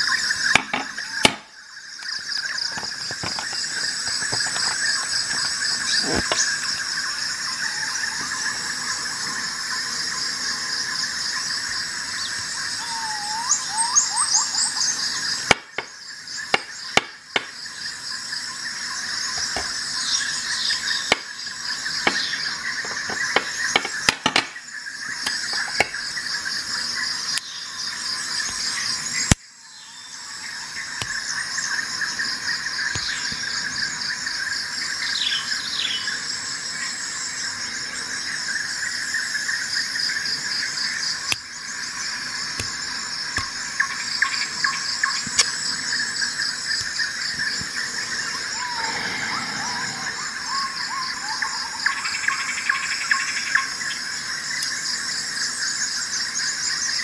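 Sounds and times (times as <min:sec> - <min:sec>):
insects chorus: 0:00.0 - 0:57.0
bird chirps: 0:12.2 - 0:15.9.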